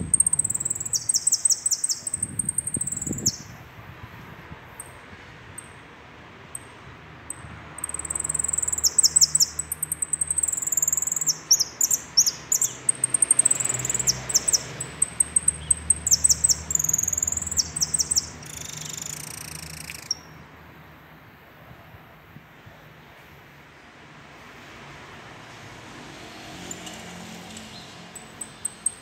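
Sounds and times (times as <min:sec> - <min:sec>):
finch singing trills and whistles: 0:00.0 - 0:03.5, 0:07.8 - 0:20.3, 0:28.4 - 0:29.0.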